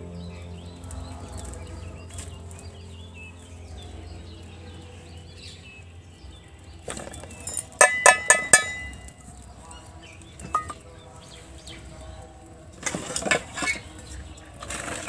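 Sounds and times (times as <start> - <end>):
birds chirping: 0.0 - 15.0
steel bowl clinking on metal pot: 7.0 - 9.3, 10.4 - 10.9.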